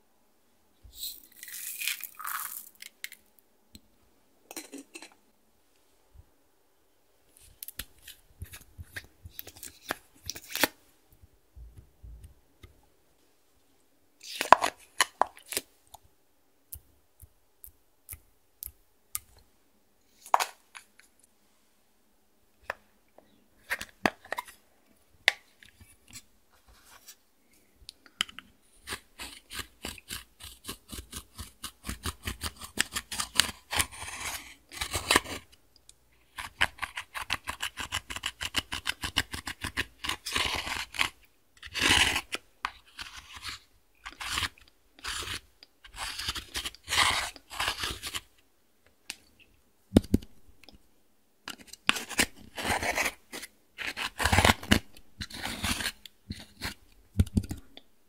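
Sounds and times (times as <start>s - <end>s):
plastic tool scraping eyeshadow: 28.8s - 35.5s, 36.3s - 48.3s, 51.5s - 57.6s.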